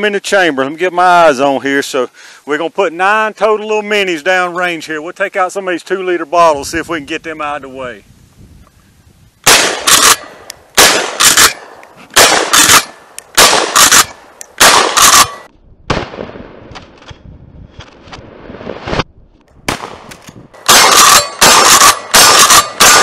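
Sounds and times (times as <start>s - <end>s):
shotgun shots: 9.4s - 17.1s, 19.7s - 23.0s.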